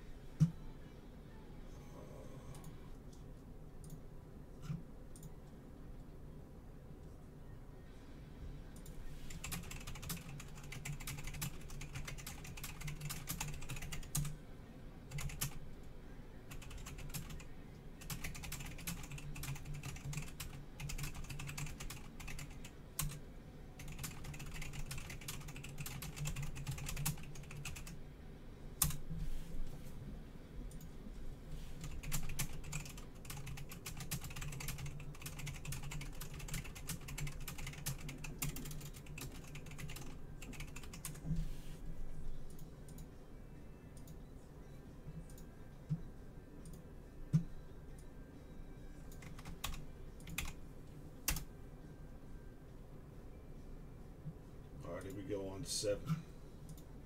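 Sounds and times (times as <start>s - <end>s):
steady low hum: 0.0s - 57.0s
typing on computer keyboard: 9.3s - 14.3s, 15.1s - 15.6s, 16.5s - 23.2s, 23.8s - 28.0s, 31.8s - 41.2s, 49.1s - 50.6s.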